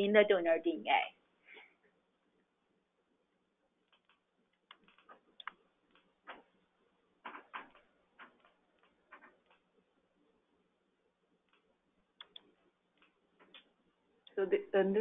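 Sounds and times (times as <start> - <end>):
faint clicks and taps: 3.8 - 6.6, 7.2 - 9.8, 11.4 - 14.4.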